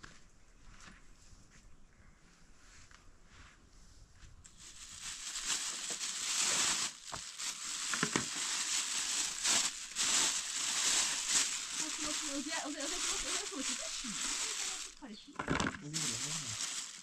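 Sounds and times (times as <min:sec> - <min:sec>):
rustling crackling noise: 0:04.4 - 0:17.0.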